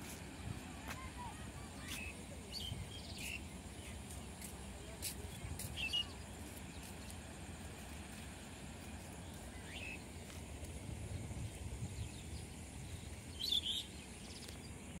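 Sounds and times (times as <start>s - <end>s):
wind rumbling on microphone: 0.0s - 15.0s
bird calls: 0.8s - 7.2s, 9.1s - 10.4s, 11.9s - 14.8s.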